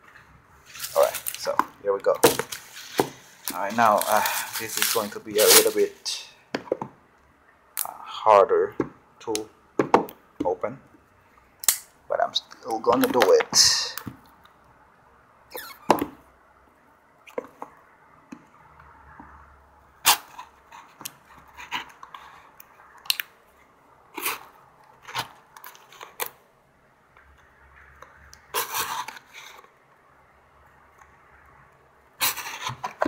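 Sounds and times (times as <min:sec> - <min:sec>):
knife cutting packing tape: 0:02.5 - 0:05.9.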